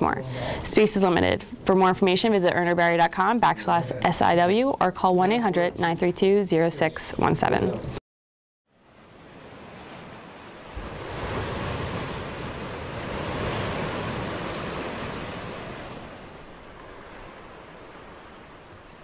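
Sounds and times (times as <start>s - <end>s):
surf-like rushing noise: 8.9s - 19.0s.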